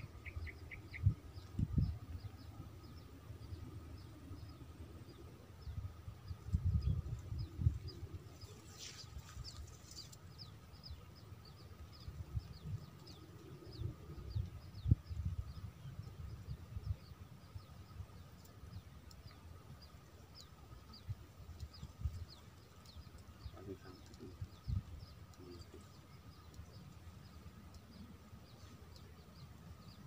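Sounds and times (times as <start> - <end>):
wind rumble on microphone: 0.0 - 28.6.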